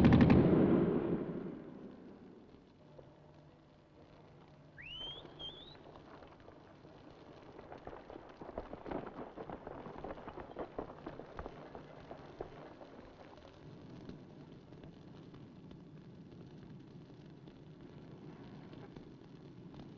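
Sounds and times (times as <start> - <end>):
short rising whistle: 4.8 - 5.8.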